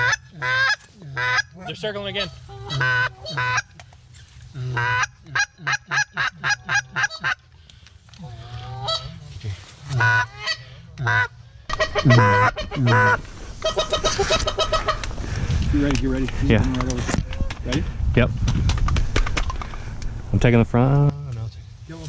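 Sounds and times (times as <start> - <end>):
goose honking: 0.0 - 3.8, 4.7 - 7.4, 8.5 - 9.1, 9.9 - 15.1
goose clucking: 0.0 - 3.9, 4.6 - 7.4, 8.4 - 9.2, 9.8 - 15.2.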